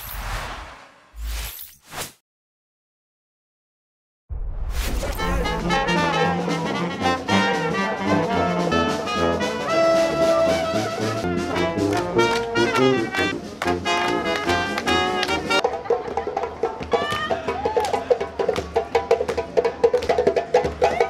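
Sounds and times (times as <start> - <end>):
brass band playing: 5.2 - 15.6
trombone: 5.2 - 15.6.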